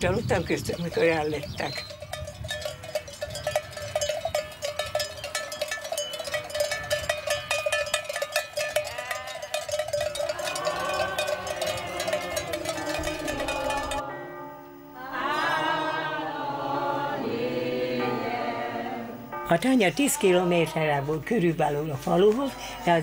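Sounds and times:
sheep bells clanking: 0.1s - 14.9s.

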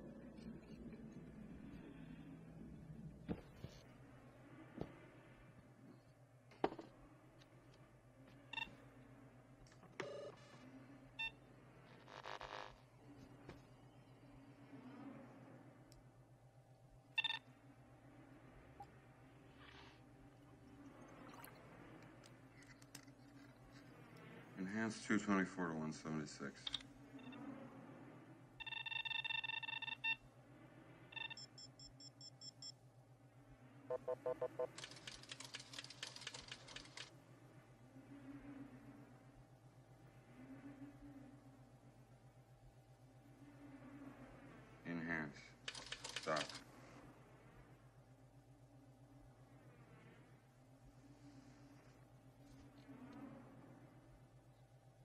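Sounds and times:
electronic beeping: 17.1s - 17.5s, 28.6s - 30.2s, 31.1s - 32.8s, 33.9s - 34.9s.

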